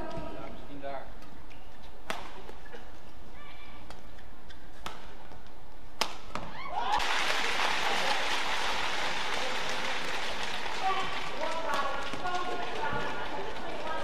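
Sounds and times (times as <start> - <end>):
racket hitting shuttlecock: 1.2 - 2.6, 3.8 - 6.6
crowd cheering and applauding: 6.6 - 14.0.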